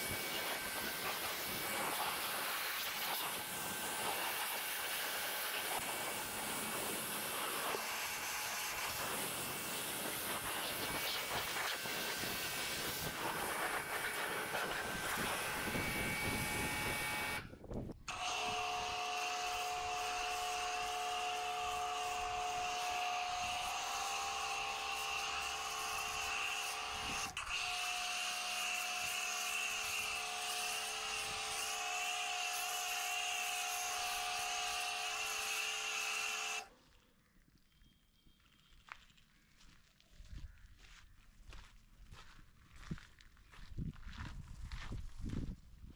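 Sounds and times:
foam cannon spraying: 0:00.0 - 0:17.4
pressure washer motor whining: 0:00.0 - 0:17.5, 0:18.1 - 0:36.7.

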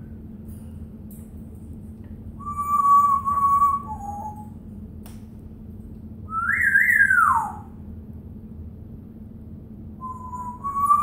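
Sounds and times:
parrot whistling: 0:02.4 - 0:04.6, 0:06.3 - 0:07.7, 0:10.0 - 0:11.0.

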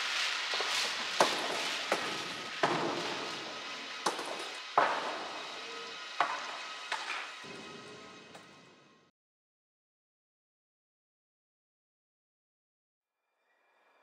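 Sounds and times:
hissy wash: 0:00.0 - 0:07.7.

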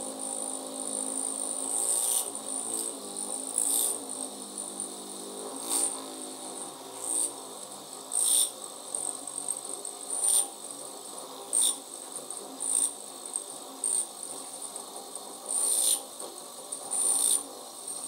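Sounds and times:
milling spindle whine: 0:00.0 - 0:18.0
metal cutting bursts: 0:15.4 - 0:16.1.

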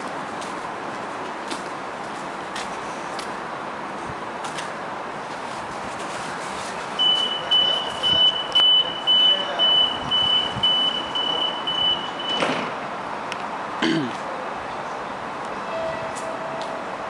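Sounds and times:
train door warning beeps: 0:07.0 - 0:12.7, 0:15.7 - 0:16.8.

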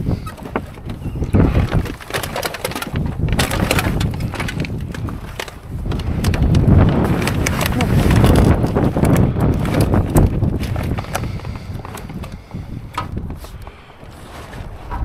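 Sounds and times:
wind buffeting microphone: 0:00.0 - 0:15.0
clicks and knocks: 0:14.8 - 0:15.0.

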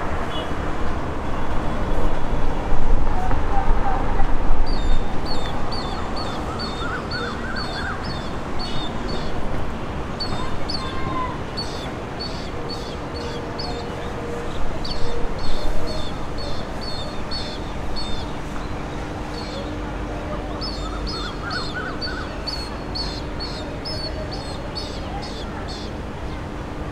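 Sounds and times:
small birds chirping: 0:04.7 - 0:09.5, 0:10.2 - 0:19.8, 0:20.5 - 0:26.4.

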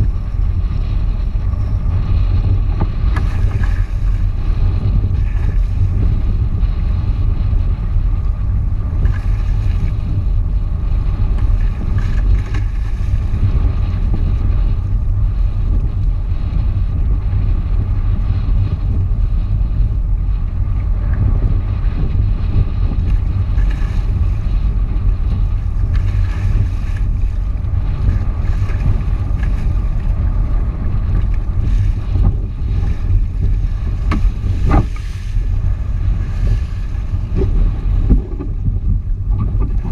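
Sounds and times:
wind buffeting microphone: 0:00.0 - 0:39.9
water rushing and splashing: 0:02.8 - 0:06.2, 0:08.9 - 0:10.2, 0:11.0 - 0:14.5, 0:23.0 - 0:39.9.

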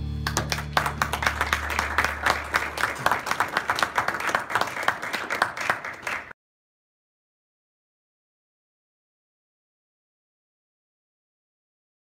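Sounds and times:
background music: 0:00.0 - 0:02.9
audience clapping: 0:00.0 - 0:06.4.

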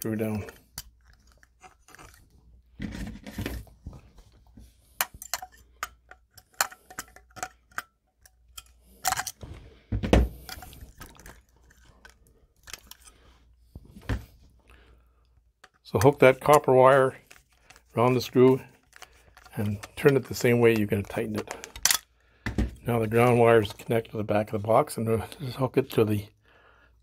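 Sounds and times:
metallic clicks and clinks: 0:05.0 - 0:09.4.

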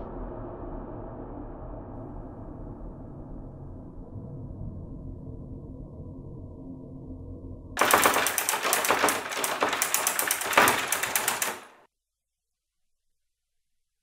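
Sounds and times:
laptop keys clattering: 0:07.8 - 0:11.8.

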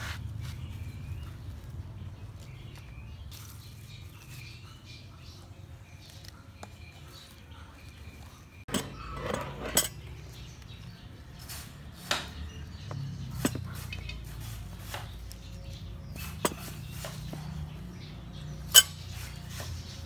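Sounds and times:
glass bottle and spoon clinking: 0:18.7 - 0:19.0.

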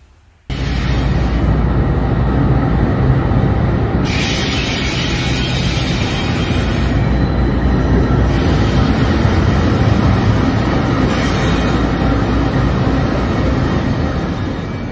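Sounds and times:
diesel locomotive rumbling past: 0:00.5 - 0:14.9.

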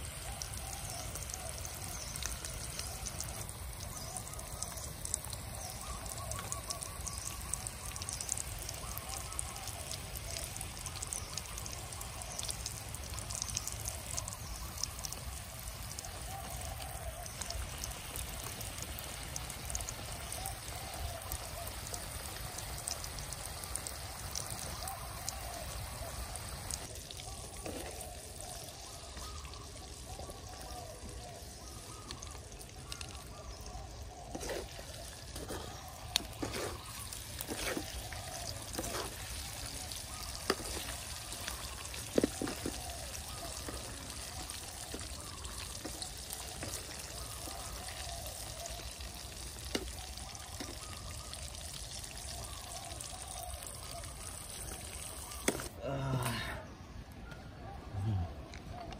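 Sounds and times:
oil sizzling in a wok: 0:00.0 - 0:55.7
spatula scraping a pan: 0:34.3 - 0:38.1, 0:38.7 - 0:39.2.

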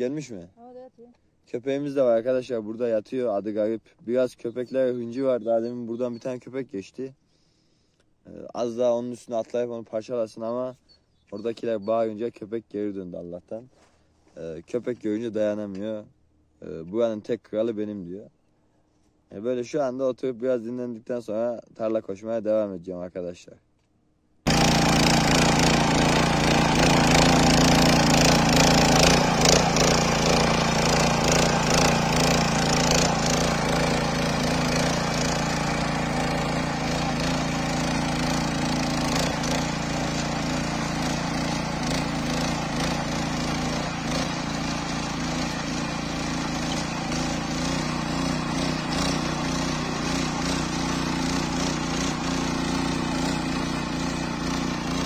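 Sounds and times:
rototiller engine running: 0:24.5 - 0:55.0
tines churning soil: 0:24.5 - 0:55.0.

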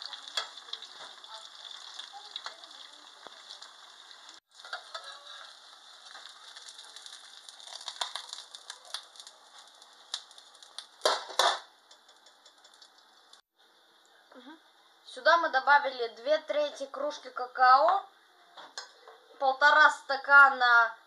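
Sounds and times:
pancake sizzling in oil: 0:00.0 - 0:13.5
metal spatula scraping pan: 0:04.6 - 0:06.2.

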